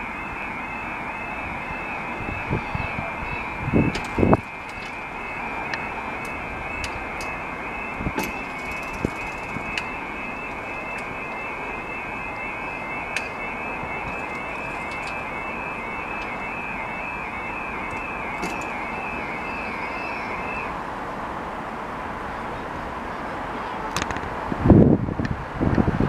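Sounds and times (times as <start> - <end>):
level crossing alarm warbling: 0.0 - 20.8.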